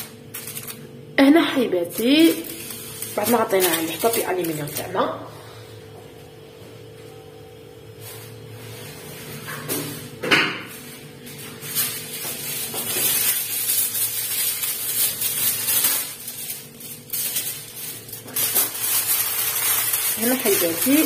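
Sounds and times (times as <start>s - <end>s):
aluminium foil crinkling: 0.0s - 5.0s, 11.2s - 21.0s.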